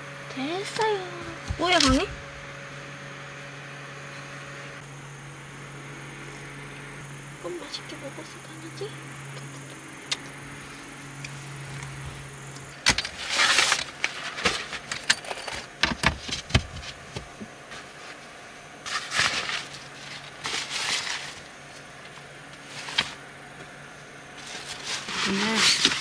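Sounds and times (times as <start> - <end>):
low steady hum: 0.0 - 26.0
packaging rustling: 18.9 - 21.5.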